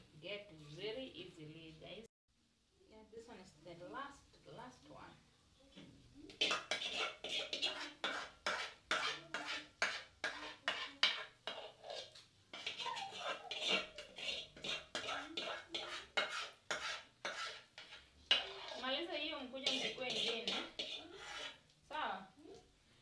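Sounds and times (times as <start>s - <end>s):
metal spoon scraping container: 6.4s - 21.6s.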